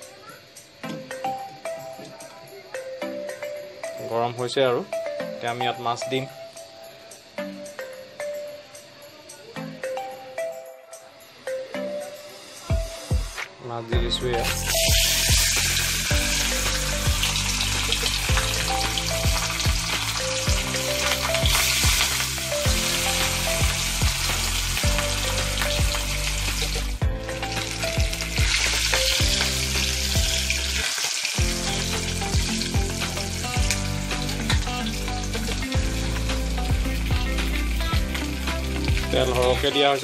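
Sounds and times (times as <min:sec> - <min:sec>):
quiet background music: 0:00.0 - 0:40.0
fish sizzling in oil: 0:14.4 - 0:40.0.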